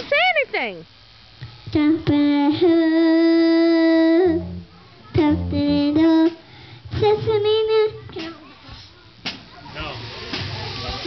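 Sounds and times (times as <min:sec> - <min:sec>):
girl singing held notes: 0:01.7 - 0:09.1.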